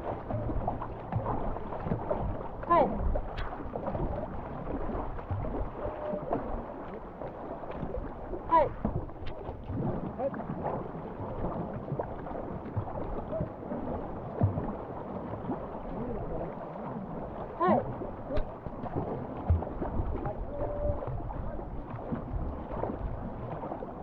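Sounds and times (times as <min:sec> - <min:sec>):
paddles splashing in water: 0:00.0 - 0:24.0
wind buffeting microphone: 0:07.8 - 0:24.0.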